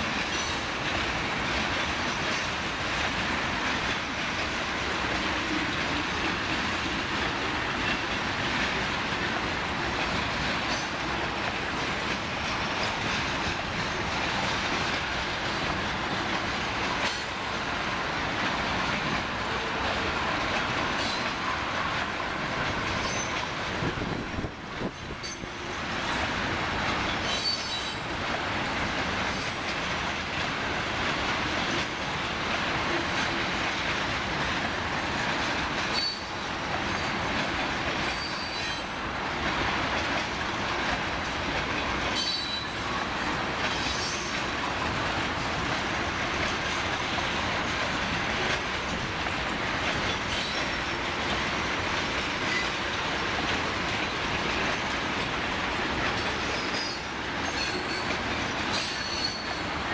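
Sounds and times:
train wheels rumbling on track: 0:00.0 - 0:59.9
high wheel squeals: 0:58.8 - 0:59.6.

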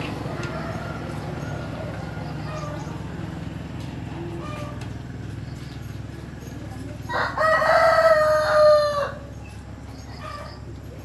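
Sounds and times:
rooster crowing: 0:07.1 - 0:09.3.

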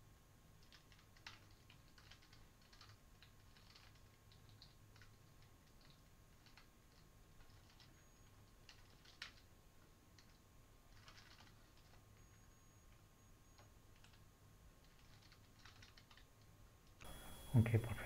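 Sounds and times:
low steady hum: 0:00.0 - 0:18.0
typing on computer keyboard: 0:00.6 - 0:09.5, 0:10.1 - 0:12.4, 0:13.5 - 0:16.5.

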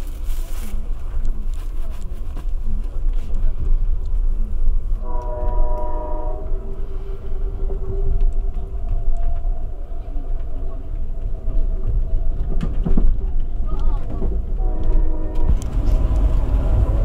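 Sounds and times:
train car rumbling on rails: 0:00.0 - 0:17.0
multi-chime train horn: 0:05.0 - 0:06.6, 0:14.6 - 0:15.7.

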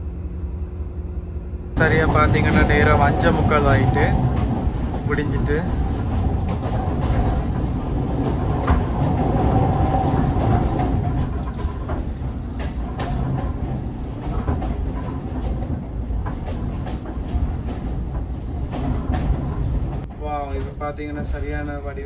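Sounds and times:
train carriage rumble: 0:00.0 - 0:22.0
wheels clicking over rail joints: 0:01.8 - 0:22.0.

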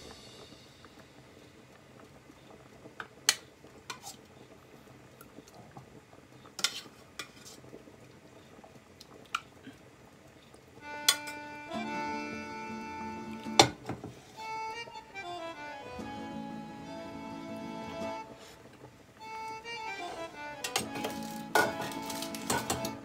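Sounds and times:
accordion music: 0:10.8 - 0:23.0.

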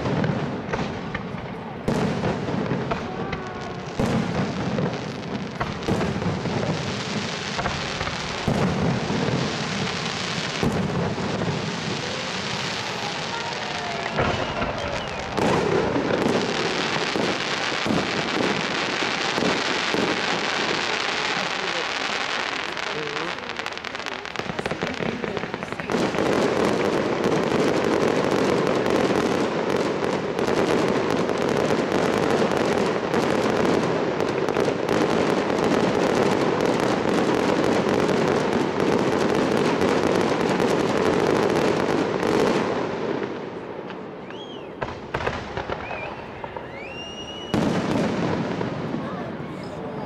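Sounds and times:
firework bang: 0:00.0 - 0:49.3
fireworks crackling: 0:00.0 - 0:50.0
firework whistles: 0:07.0 - 0:28.1, 0:43.9 - 0:48.7.

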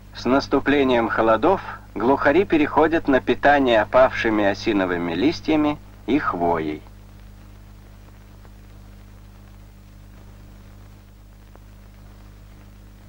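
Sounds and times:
faint hiss: 0:00.0 - 0:13.0
low hum: 0:00.0 - 0:13.0
faint clicks: 0:06.8 - 0:13.0.

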